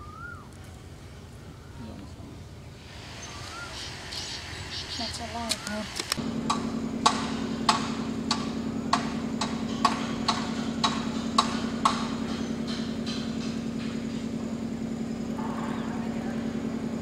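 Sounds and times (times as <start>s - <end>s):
engine hum: 0.0s - 17.0s
sharp knocks: 6.4s - 14.3s.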